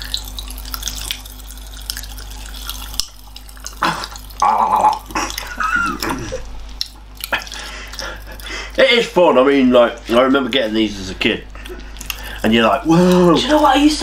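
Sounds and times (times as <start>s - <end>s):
popping candy crackling: 0.0s - 10.6s, 11.6s - 14.0s
person humming: 3.8s - 6.4s
person laughing: 3.8s - 6.5s.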